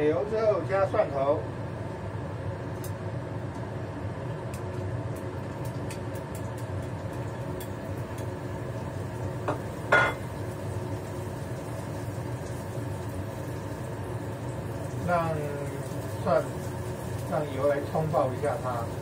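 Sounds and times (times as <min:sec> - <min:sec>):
range hood fan humming: 0:00.0 - 0:19.0
garlic frying in oil: 0:04.1 - 0:19.0.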